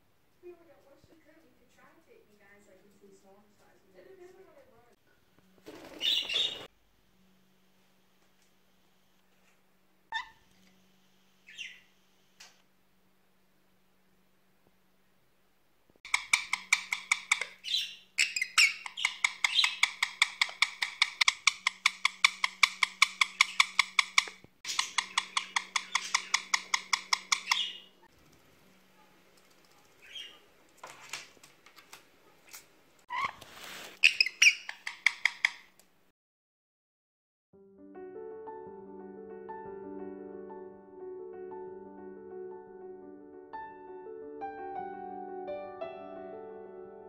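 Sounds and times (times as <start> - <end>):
parakeet calling: 5.8 - 6.7, 10.1 - 10.5, 11.4 - 12.0, 16.1 - 28.1, 29.0 - 30.5, 34.0 - 35.7.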